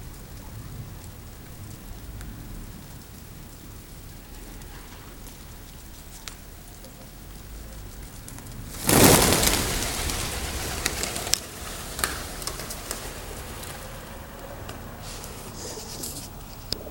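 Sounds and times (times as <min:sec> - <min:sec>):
pigeons flapping wings: 0:03.8 - 0:16.9
sharp wing claps: 0:08.4 - 0:16.0.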